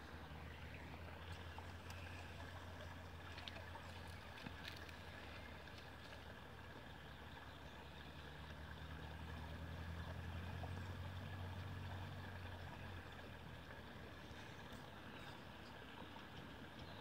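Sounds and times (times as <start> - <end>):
faint engine hum: 0.0 - 17.0.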